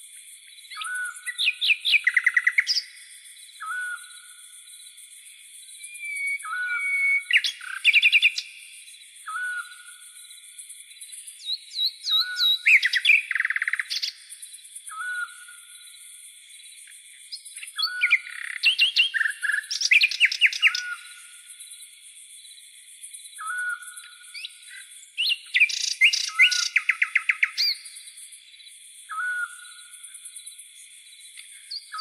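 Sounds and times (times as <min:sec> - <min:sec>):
steady high insect trill: 0:00.0 - 0:32.0
bird trilling and chirping: 0:11.4 - 0:14.1, 0:17.7 - 0:21.0, 0:23.4 - 0:27.8.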